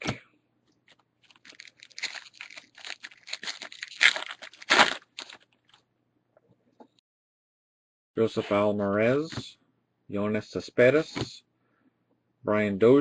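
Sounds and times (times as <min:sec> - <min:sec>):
wrapper crinkling and tearing: 0:00.8 - 0:05.8.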